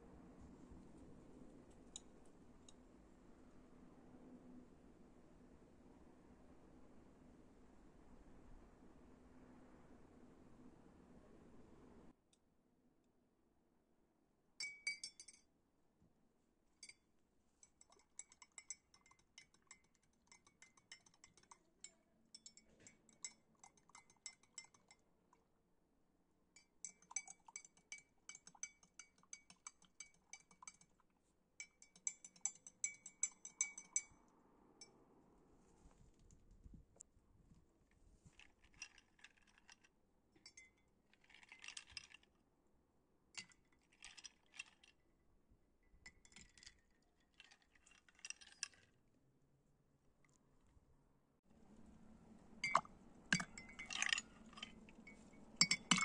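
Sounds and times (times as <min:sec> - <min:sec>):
spoon clinking against glass: 0:14.6 - 0:15.5, 0:17.6 - 0:25.0, 0:26.6 - 0:31.0, 0:31.6 - 0:34.2, 0:40.4 - 0:42.1, 0:52.6 - 0:56.0.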